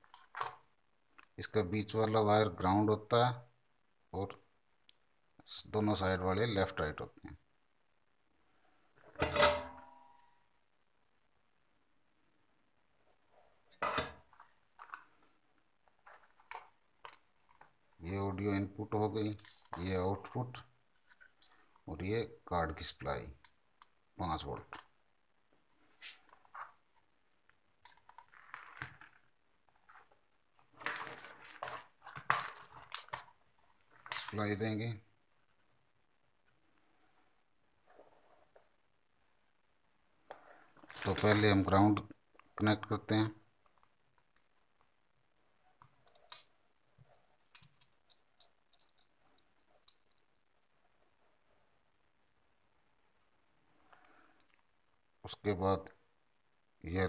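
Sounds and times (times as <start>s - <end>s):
circuit boards and wires handled: 27.8s - 34.6s, 40.3s - 42.0s.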